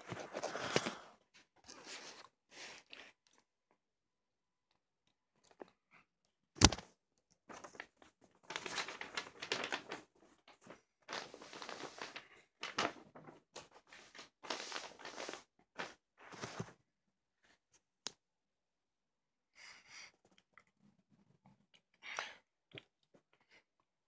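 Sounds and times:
rustling and crinkling of booklet: 0.0s - 2.8s, 7.5s - 16.8s.

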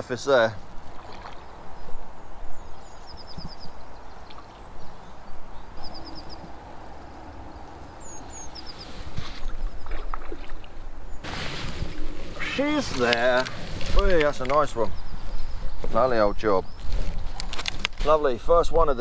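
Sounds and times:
wind buffeting microphone: 0.6s - 19.0s
songbird trilling: 1.2s - 10.3s, 14.6s - 16.9s.

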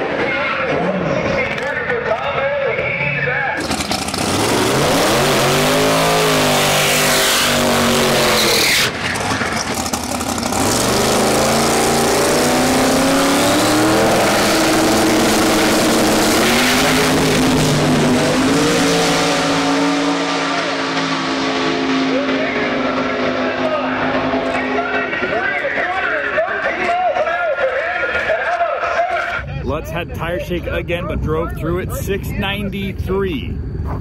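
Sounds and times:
drag car engine revving: 3.6s - 26.9s.

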